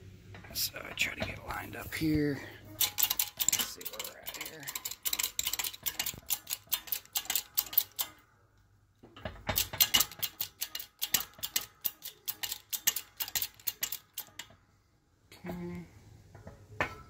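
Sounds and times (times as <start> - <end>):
shop press metallic clicking: 2.8 - 8.3, 9.0 - 14.6.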